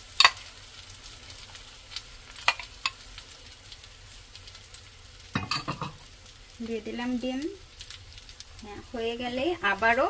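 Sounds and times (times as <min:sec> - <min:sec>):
egg sizzling in frying pan: 0:00.0 - 0:10.0
metal ladle clinking: 0:05.4 - 0:06.0.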